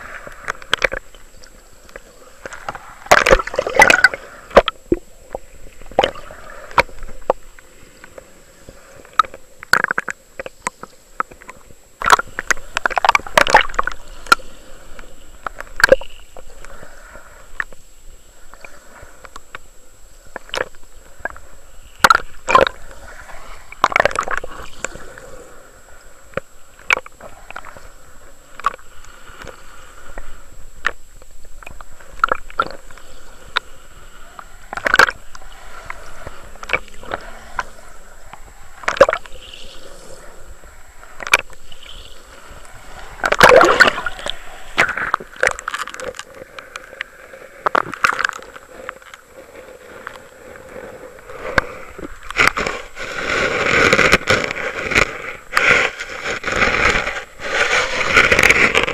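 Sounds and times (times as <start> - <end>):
underwater sloshing and gurgling: 0.0 - 58.9.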